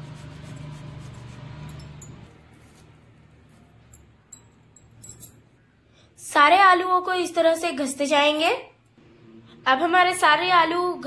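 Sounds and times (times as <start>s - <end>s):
potato rasping on a grater: 0.0s - 1.7s.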